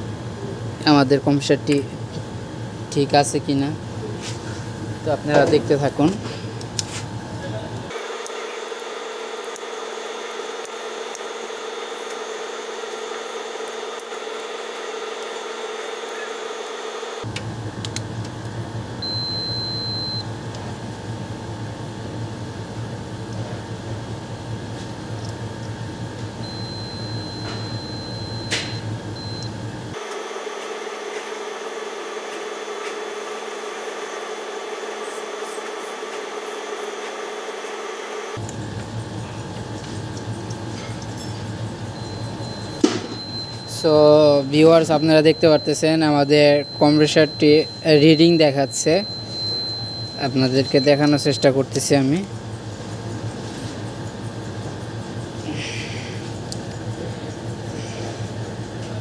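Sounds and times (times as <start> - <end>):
background hum: 17.2 - 36.5, 37.9 - 59.0
multimeter continuity beep: 19.0 - 20.3, 26.4 - 38.4, 41.9 - 52.2.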